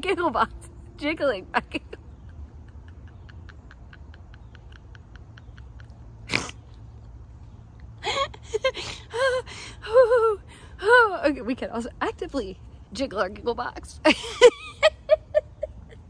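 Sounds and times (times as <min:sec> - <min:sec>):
woman laughing: 0:01.6 - 0:06.3, 0:08.0 - 0:10.4, 0:14.0 - 0:16.0.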